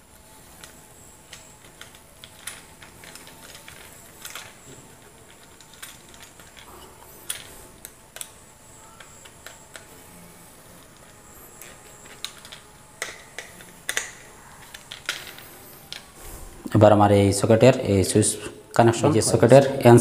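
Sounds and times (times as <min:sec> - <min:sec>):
screwdriver clicking on plastic: 0:11.0 - 0:16.0.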